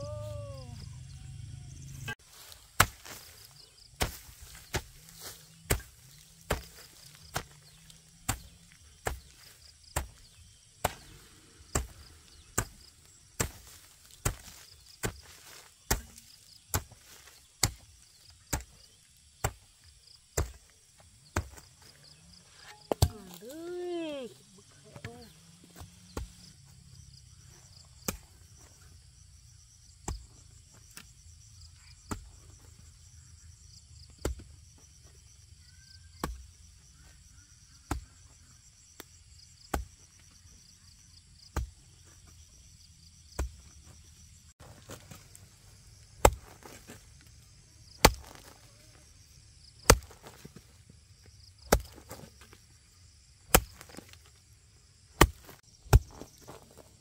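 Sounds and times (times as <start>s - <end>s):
insects chirring: 0.0s - 57.0s.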